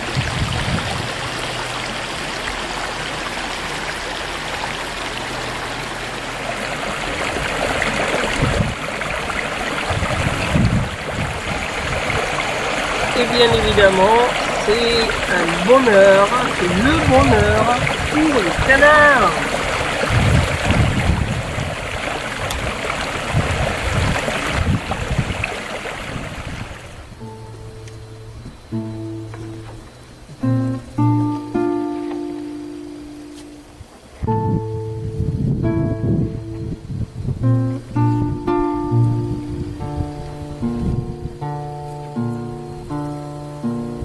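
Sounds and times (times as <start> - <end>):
gusty low rumbles: 0.0 - 15.3, 16.4 - 29.1, 33.8 - 41.7
stream flowing: 0.0 - 44.0
dull low thumps: 34.2 - 41.6.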